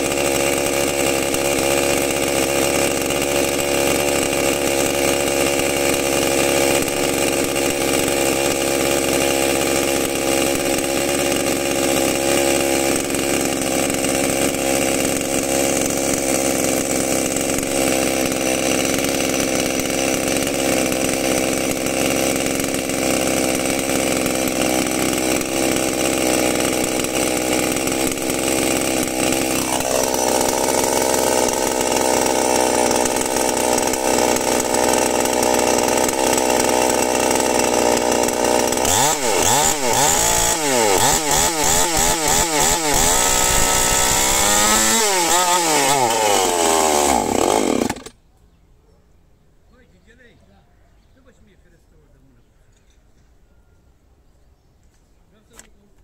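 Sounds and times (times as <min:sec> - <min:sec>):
chainsaw engine running: 0:00.0 - 0:48.2.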